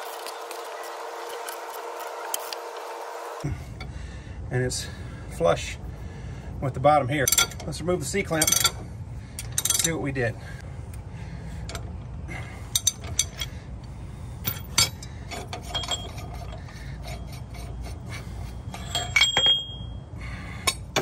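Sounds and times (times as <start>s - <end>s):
metal tools clinking and knocking: 7.2s - 8.8s, 9.4s - 10.0s, 12.7s - 13.6s, 14.4s - 17.7s, 18.6s - 20.0s.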